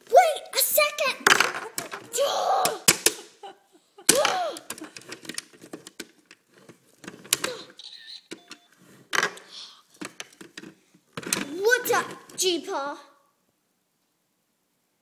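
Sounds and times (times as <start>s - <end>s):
child's voice: 0.0s - 2.9s, 4.1s - 4.7s, 11.4s - 13.2s.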